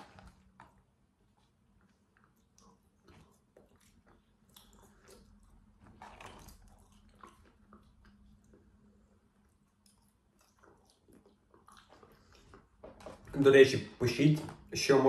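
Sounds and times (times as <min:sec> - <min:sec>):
chewing fries: 0:00.0 - 0:13.4.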